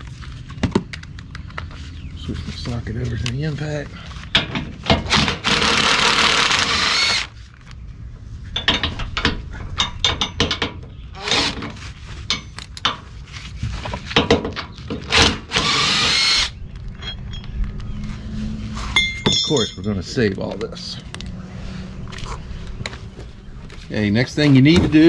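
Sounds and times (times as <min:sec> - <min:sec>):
scattered clicks and knocks: 0:08.6 - 0:11.0, 0:13.8 - 0:15.3.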